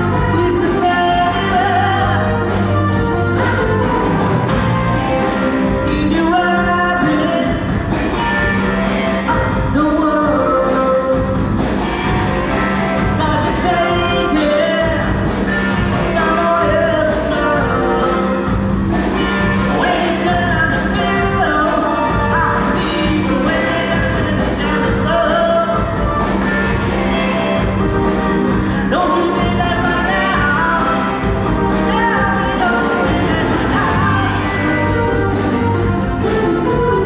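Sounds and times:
keyboard synthesizer: 0.0s - 10.6s
person singing: 0.0s - 11.5s, 13.0s - 26.3s, 27.1s - 37.0s
drum kit: 0.0s - 37.0s
electric guitars: 0.0s - 37.0s.

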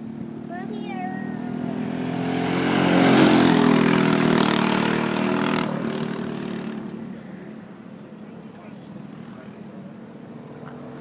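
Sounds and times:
go-kart engine passing by: 0.0s - 7.7s.

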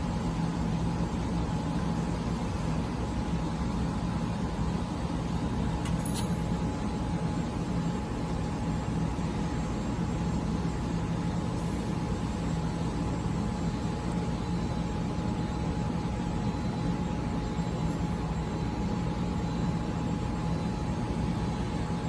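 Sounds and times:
low machinery hum: 0.0s - 22.0s
thin steady whine: 0.0s - 22.0s
light metallic clink: 5.8s - 6.6s.

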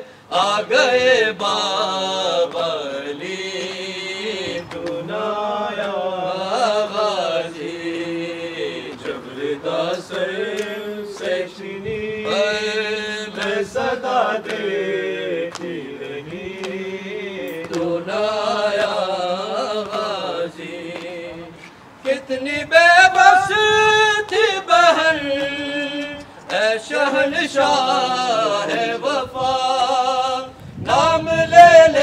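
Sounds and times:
low vocal drone: 0.0s - 21.6s, 27.0s - 32.0s
layered voices chanting lament: 0.0s - 32.0s.

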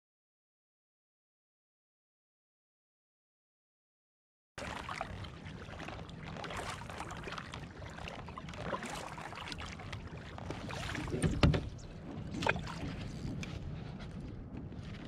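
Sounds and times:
paddle splashing in water: 4.6s - 14.1s
paddle thumping on kayak: 10.4s - 13.6s.

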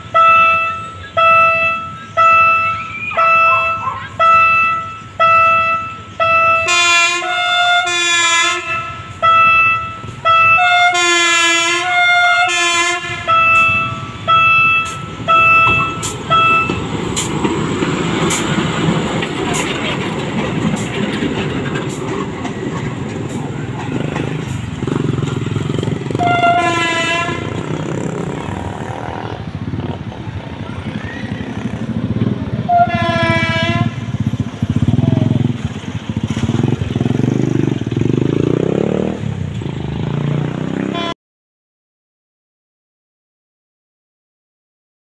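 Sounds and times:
locomotive horn toots: 0.0s - 17.3s, 23.2s - 29.4s, 32.6s - 34.4s, 40.7s - 41.2s
locomotive engine and wheels rumbling: 0.0s - 41.1s
wheels clicking over rail joints: 14.2s - 38.2s.

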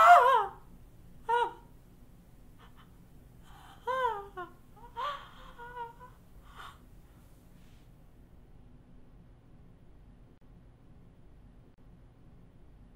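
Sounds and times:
infant crying: 0.0s - 0.6s, 3.5s - 6.8s
gasping breaths: 6.4s - 6.9s.

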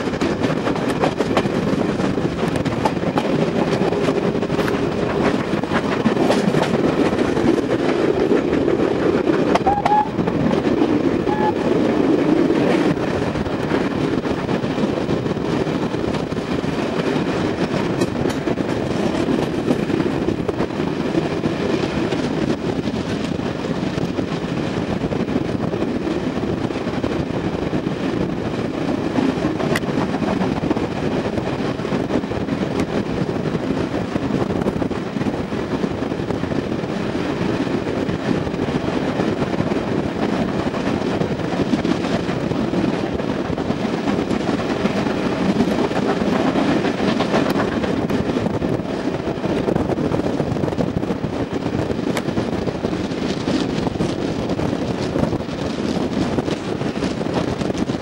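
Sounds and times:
train coaches rumbling on rails: 0.0s - 58.0s.

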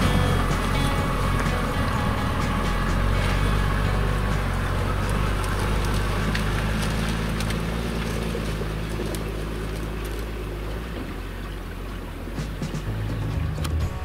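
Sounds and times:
stones crunching under tyres: 0.0s - 11.2s
diesel engine pulling uphill: 0.0s - 14.0s.

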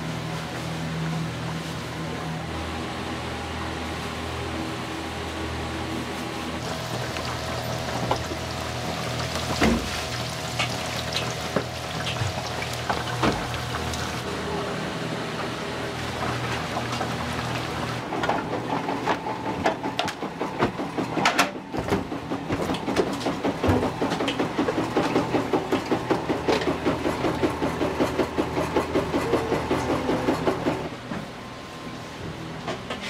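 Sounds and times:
dough-rolling machine clacking: 18.2s - 30.9s.

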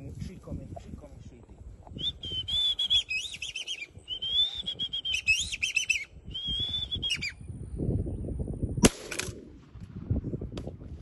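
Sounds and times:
high whistled bird calls: 1.9s - 7.5s
gunshot: 8.8s - 10.0s.

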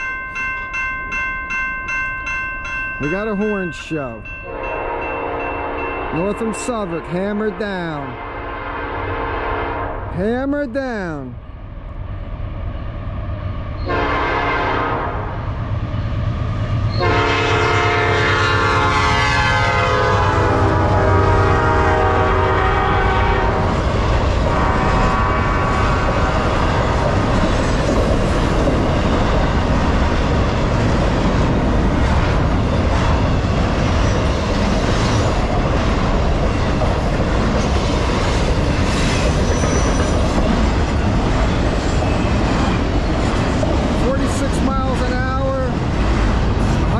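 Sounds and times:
train horn blasts: 4.4s - 10.1s, 13.8s - 15.5s, 16.9s - 23.8s, 24.5s - 26.6s
train cars rolling clickety-clack: 16.7s - 46.9s.

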